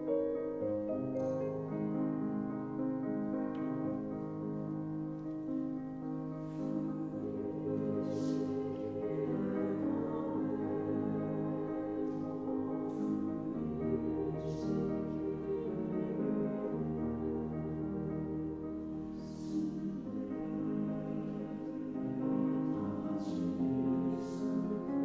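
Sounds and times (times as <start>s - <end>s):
piano accompaniment: 0.0s - 25.0s
mixed choir singing: 6.3s - 25.0s.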